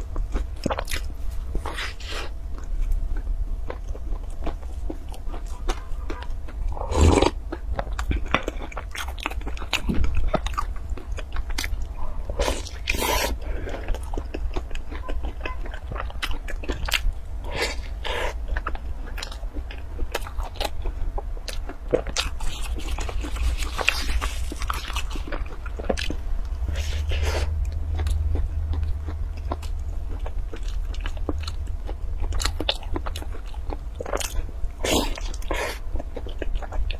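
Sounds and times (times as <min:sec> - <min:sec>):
chewing crisp pastry: 0:00.0 - 0:36.9
wet mouth sounds: 0:05.3 - 0:08.4.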